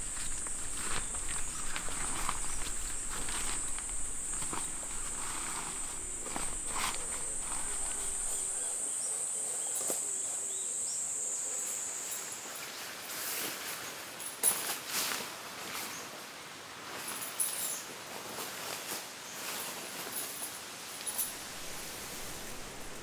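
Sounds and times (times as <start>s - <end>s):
light scuffs and clicks: 0.0s - 8.8s
insects droning: 0.0s - 14.5s, 19.1s - 23.0s.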